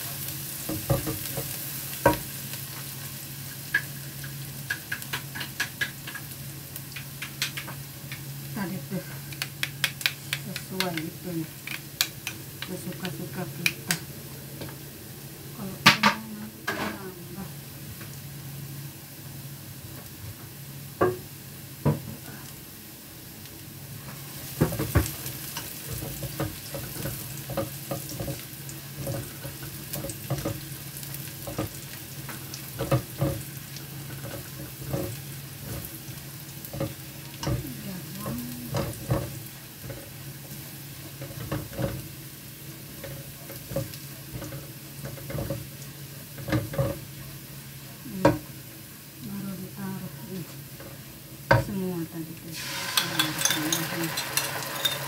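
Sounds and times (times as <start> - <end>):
garlic sizzling in oil: 0.0 - 55.0
spatula knocking and scraping pan: 0.6 - 2.3, 24.6 - 30.6, 31.4 - 40.2, 41.0 - 42.1, 42.9 - 45.7, 46.3 - 47.2.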